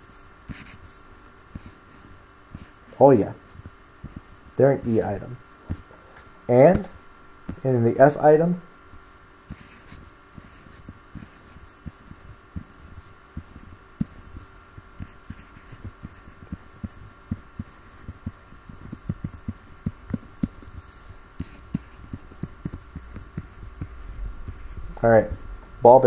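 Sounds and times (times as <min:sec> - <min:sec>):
faint electrical hum: 0:00.0 - 0:26.0
soft taps of drawing strokes: 0:15.0 - 0:25.0.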